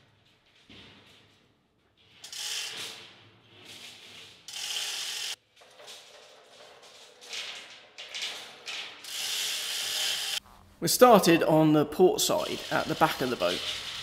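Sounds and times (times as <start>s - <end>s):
chain running through hoist block: 4.5s - 10.4s.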